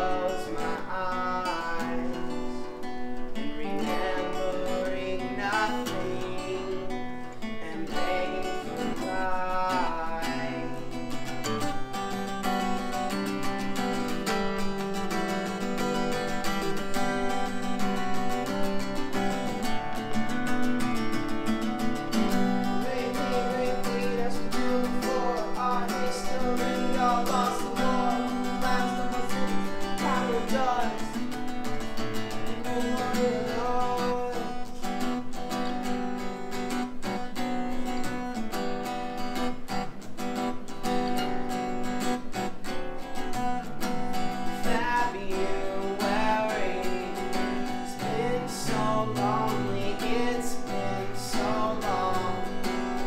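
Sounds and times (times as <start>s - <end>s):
man singing: 0.0s - 11.8s, 15.5s - 21.0s, 21.6s - 35.2s, 44.4s - 53.0s
acoustic guitar: 0.0s - 53.0s.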